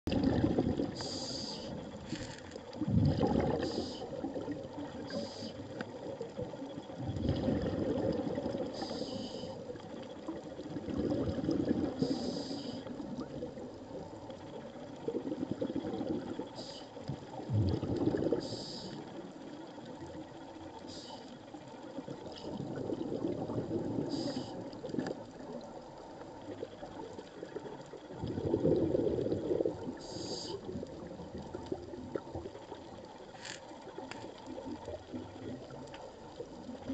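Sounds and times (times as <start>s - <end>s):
bubbly exhalations: 0.1s - 5.2s, 7.0s - 8.8s, 10.8s - 12.2s, 17.4s - 18.6s, 28.1s - 32.4s
regulator hissing inhalations: 0.9s - 2.4s, 3.6s - 4.2s, 5.1s - 5.7s, 8.8s - 9.6s, 12.0s - 12.9s, 16.6s - 17.0s, 18.4s - 19.0s, 20.8s - 21.4s, 24.1s - 24.6s, 30.0s - 30.7s.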